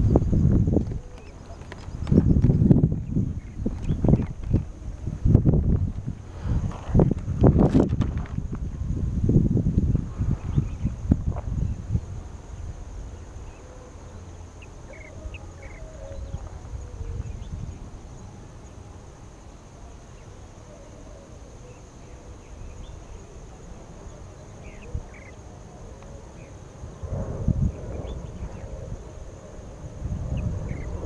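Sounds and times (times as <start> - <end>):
insects droning: 0.0 - 31.0
wind rumble on microphone: 0.0 - 31.0.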